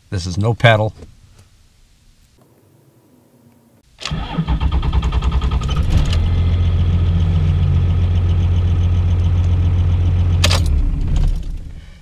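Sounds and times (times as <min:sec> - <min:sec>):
diesel engine cranking and starting: 0:04.0 - 0:11.8
diesel engine idling with clatter: 0:05.6 - 0:11.8.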